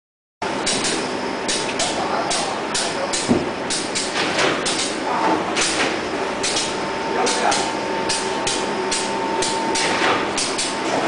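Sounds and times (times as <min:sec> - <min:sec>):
printing machine hum: 0:00.4 - 0:11.0
loud thump: 0:03.3 - 0:03.5
thin steady whine: 0:04.9 - 0:11.0.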